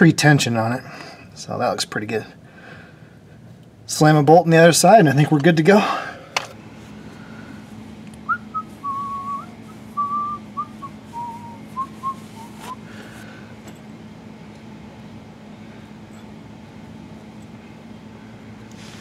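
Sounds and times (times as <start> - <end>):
steady low hum: 0.0 - 19.0
man whistling a tune: 8.3 - 12.9.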